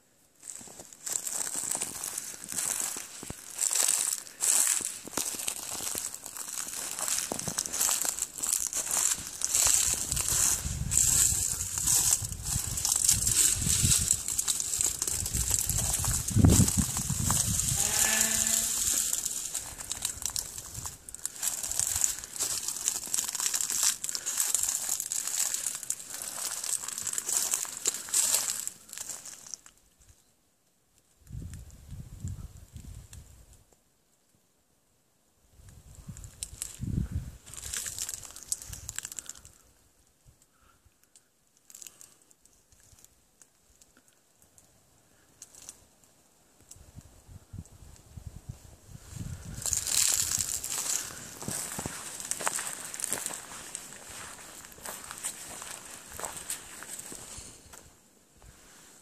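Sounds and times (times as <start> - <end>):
footsteps on dry leaves: 0.4 - 29.7, 36.4 - 39.4, 49.0 - 59.0.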